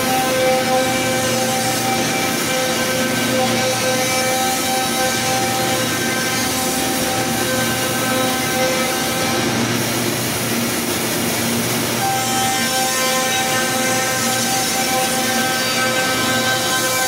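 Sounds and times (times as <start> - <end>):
router cutting wood: 0.0 - 17.0.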